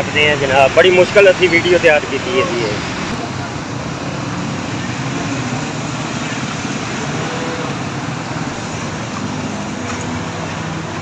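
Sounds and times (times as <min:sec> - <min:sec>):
road noise of traffic: 0:00.0 - 0:11.0.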